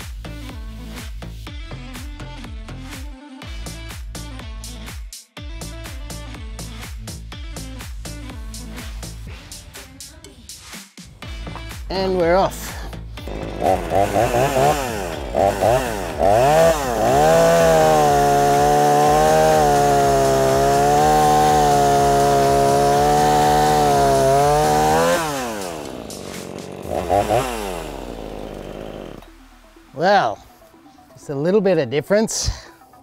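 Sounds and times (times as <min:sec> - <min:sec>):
chainsaw revving and cutting wood: 0:11.3 - 0:29.8.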